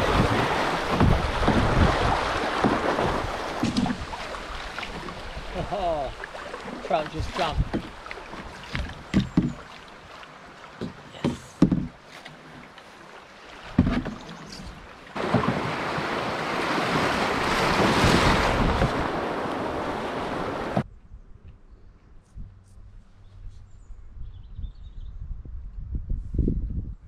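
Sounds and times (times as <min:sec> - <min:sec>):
paddle knocks and splashes: 0:00.0 - 0:20.8.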